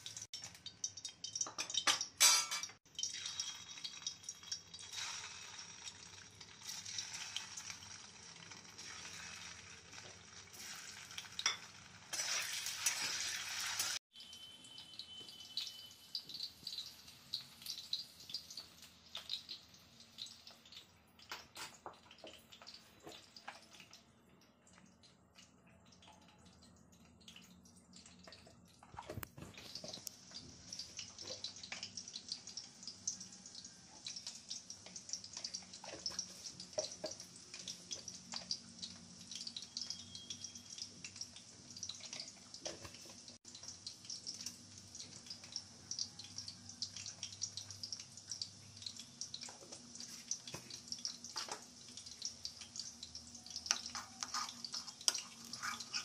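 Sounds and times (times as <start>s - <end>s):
spoon scraping small bowl: 53.8s - 56.0s.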